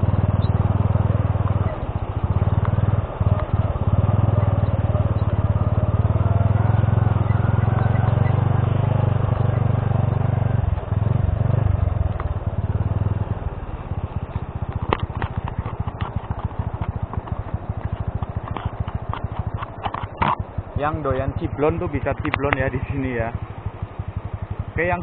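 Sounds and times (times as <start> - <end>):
moped engine running: 0.0 - 25.0.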